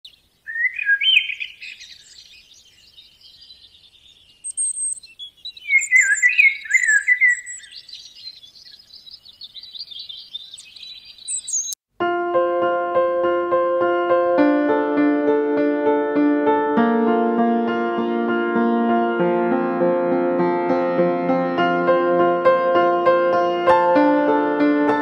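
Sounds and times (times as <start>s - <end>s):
songbirds chirping and trilling: 0.1s - 11.8s
piano music: 12.0s - 25.0s.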